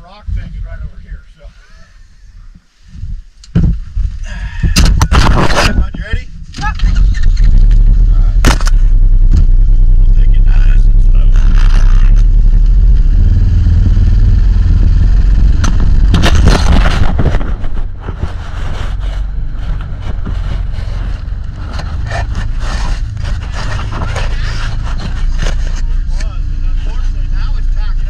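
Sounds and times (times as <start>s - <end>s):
vehicle rumble on rough ground: 0.0s - 28.0s
clattering and scraping: 4.7s - 9.8s, 15.3s - 27.1s.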